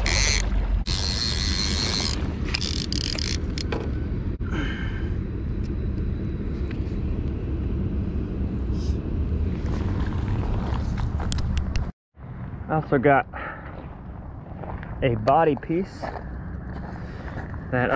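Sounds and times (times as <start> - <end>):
low rumble: 3.4 - 12.8.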